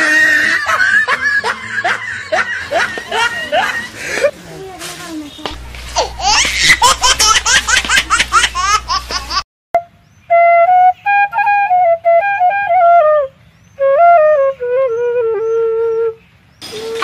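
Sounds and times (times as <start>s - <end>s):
low hum: 5.5s - 9.4s.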